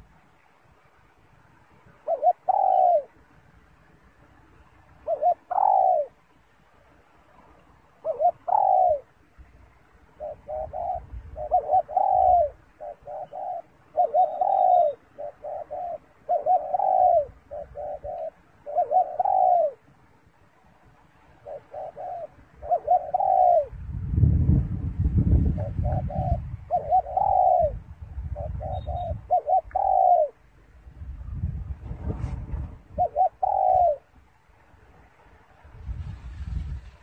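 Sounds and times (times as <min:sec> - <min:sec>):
dove cooing: 0:01.9 - 0:03.3, 0:04.7 - 0:06.3, 0:07.9 - 0:09.2, 0:10.1 - 0:19.9, 0:21.3 - 0:23.8, 0:25.3 - 0:30.5, 0:32.7 - 0:34.1.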